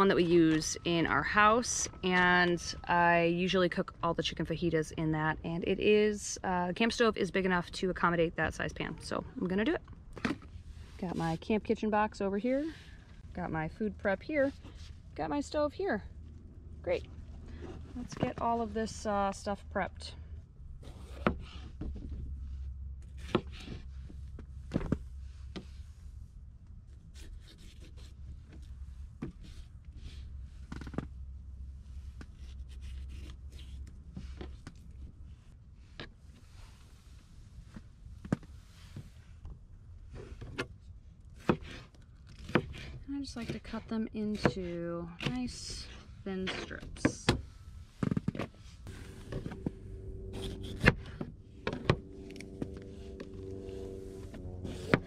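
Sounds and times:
steady low rumble: 0.0s - 27.2s, 47.3s - 55.0s.

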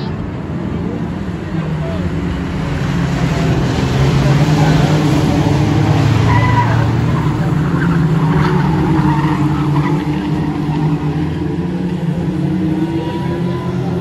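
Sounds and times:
race car engines droning: 0.0s - 14.0s
tyre squeals: 6.2s - 11.2s.

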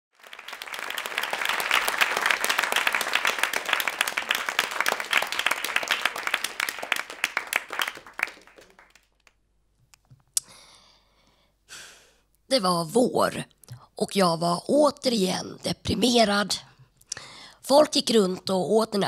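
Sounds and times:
audience applauding: 0.1s - 9.4s.

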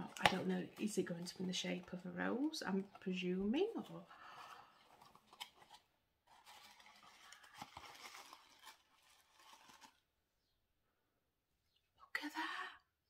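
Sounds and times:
packaging crinkling and tearing: 4.8s - 10.0s.

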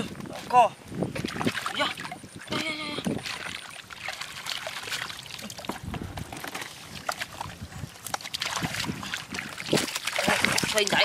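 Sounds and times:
muddy water sloshing and splashing: 0.0s - 11.0s
water trickling through mesh: 1.4s - 11.0s.

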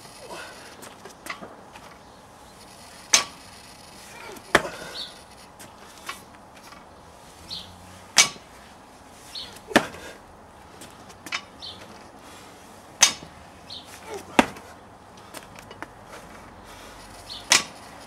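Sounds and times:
barbell striking rubber mat: 8.2s - 8.5s, 13.0s - 13.3s, 14.4s - 14.6s.

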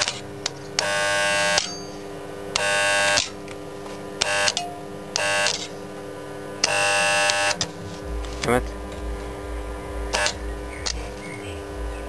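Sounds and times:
welder arc buzzing: 0.0s - 12.0s
welder hum: 0.0s - 12.0s.

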